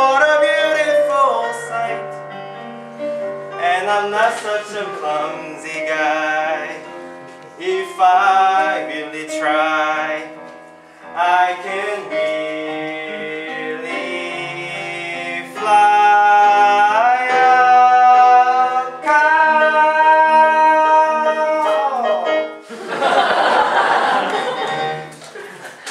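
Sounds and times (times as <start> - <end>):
young man singing: 0.0 - 2.2, 3.5 - 22.6
instrumental accompaniment: 0.0 - 25.9
audience laughing: 22.6 - 25.9
audience clapping: 23.2 - 25.9.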